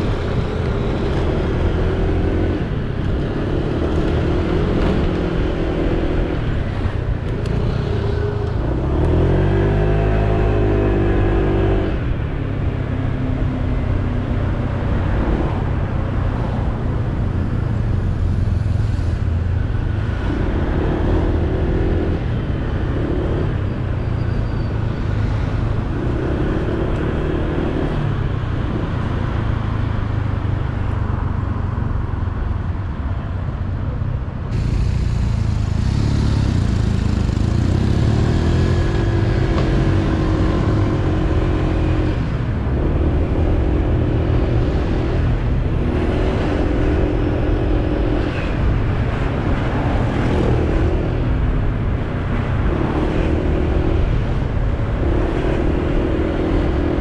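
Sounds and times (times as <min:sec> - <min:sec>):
scooter engine running: 0:34.6 - 0:38.7.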